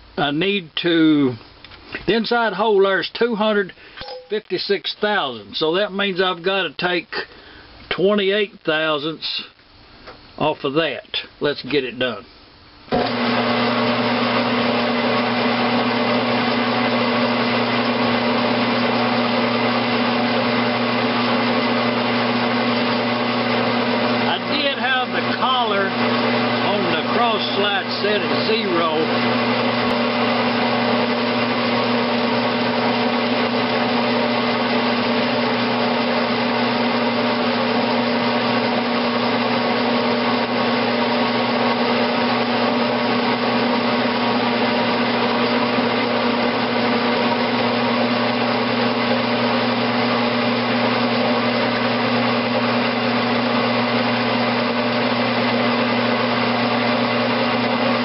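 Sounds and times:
metal lathe motor hum: 0:12.9 - 0:58.0.

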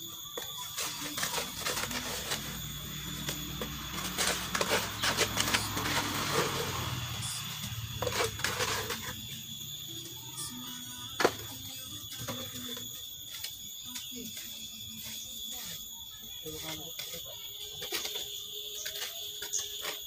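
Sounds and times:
mortar scraping out of a bucket: 0:00.4 - 0:09.3.

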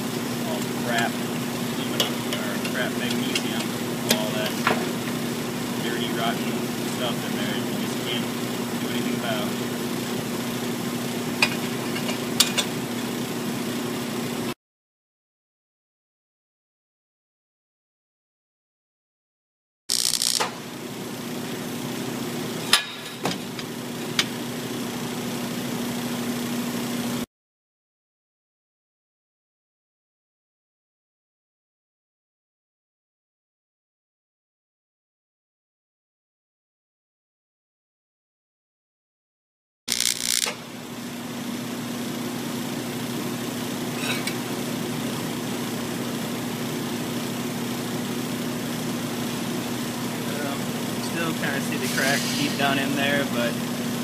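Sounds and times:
welding machine hum: 0:00.0 - 0:14.5, 0:19.9 - 0:25.8, 0:39.9 - 0:54.0
welding arc hissing: 0:19.9 - 0:20.6, 0:39.9 - 0:40.7, 0:51.2 - 0:53.4.

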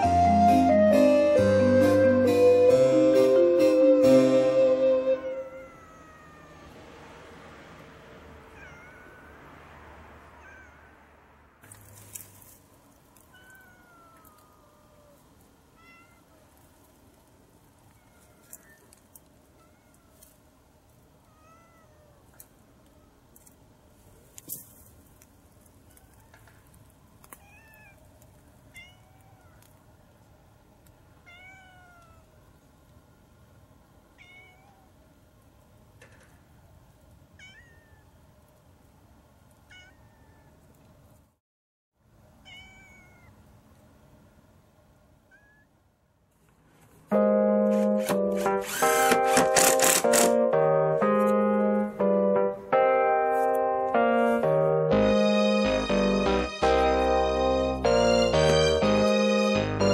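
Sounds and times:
background keyboard music: 0:00.0 - 0:05.6, 0:47.1 - 0:59.9
cat meowing: 0:05.3 - 0:06.8, 0:08.4 - 0:09.4, 0:10.4 - 0:10.9, 0:13.3 - 0:16.4, 0:17.9 - 0:20.2, 0:21.2 - 0:23.2, 0:25.8 - 0:26.7, 0:27.4 - 0:28.0, 0:28.7 - 0:29.8, 0:31.2 - 0:32.4, 0:34.1 - 0:35.0, 0:37.4 - 0:38.2, 0:39.7 - 0:40.6, 0:42.4 - 0:43.4, 0:45.3 - 0:45.7.

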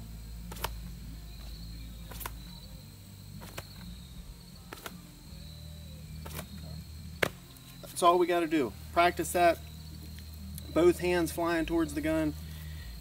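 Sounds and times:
insects trilling: 0:00.0 - 0:13.0
hands slapping shirt: 0:00.5 - 0:02.5, 0:03.4 - 0:03.9, 0:04.7 - 0:05.0, 0:06.2 - 0:06.6, 0:07.2 - 0:07.4.

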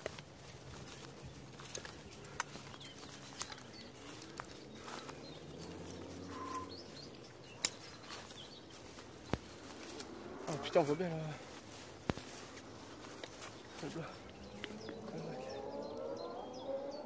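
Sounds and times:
sharp clicks and rustles: 0:00.0 - 0:10.8, 0:11.4 - 0:15.2
bird chirps: 0:00.6 - 0:17.0
distant motorbike engine: 0:04.6 - 0:07.1, 0:12.2 - 0:17.0.

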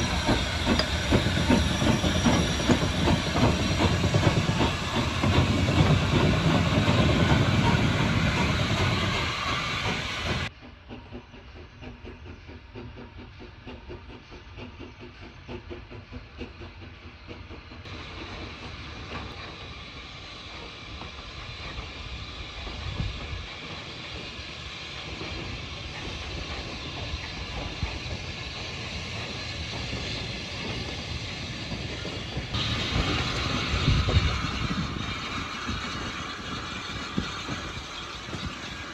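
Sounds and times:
steam locomotive passing: 0:00.0 - 0:38.9
steam escaping: 0:17.9 - 0:38.9.

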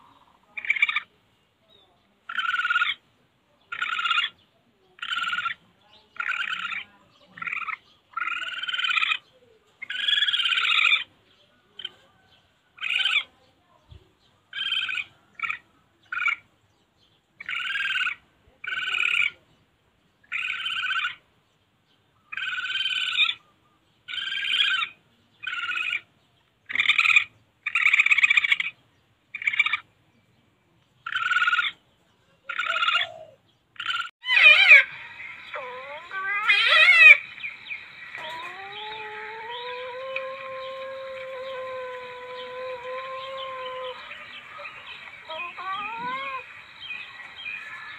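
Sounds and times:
recorded civet calls: 0:00.0 - 0:01.2, 0:02.2 - 0:13.4, 0:14.5 - 0:16.5, 0:17.4 - 0:19.4, 0:20.2 - 0:21.2, 0:22.3 - 0:23.5, 0:24.1 - 0:26.1, 0:26.7 - 0:29.9, 0:31.0 - 0:47.9.

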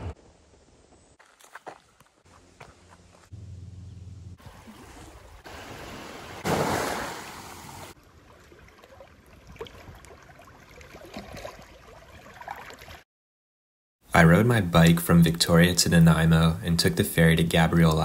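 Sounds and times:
low steady hum: 0:02.3 - 0:05.4
waves on rocky shore: 0:04.4 - 0:08.0
water lapping and trickling: 0:04.4 - 0:13.1.

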